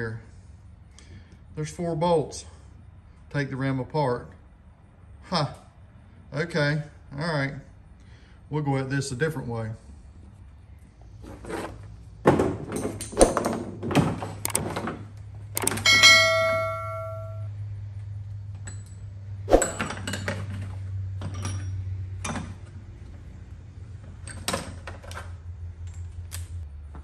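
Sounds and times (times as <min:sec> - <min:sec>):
metal piece ringing: 0:15.6 - 0:17.5
steady low hum: 0:15.6 - 0:17.9.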